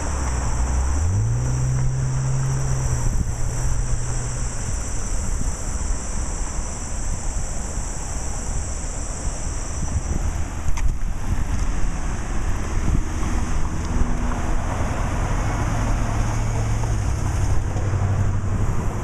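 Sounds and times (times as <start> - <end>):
vehicle engine hum: 0.0 - 19.0
wind on microphone: 1.7 - 5.8, 9.6 - 19.0.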